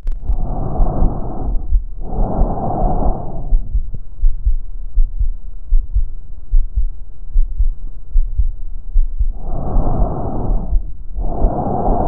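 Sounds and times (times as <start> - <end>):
breath sound through stethoscope: 0.0 - 4.6, 9.0 - 12.0
heartbeat thumping: 0.0 - 12.0.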